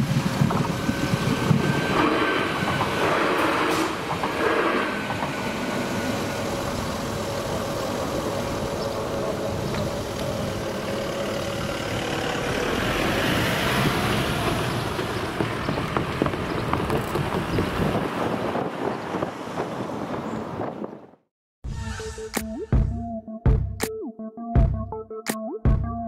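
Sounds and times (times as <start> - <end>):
faint electric train whine: 0.0 - 12.9
car engines and tyres: 0.0 - 21.2.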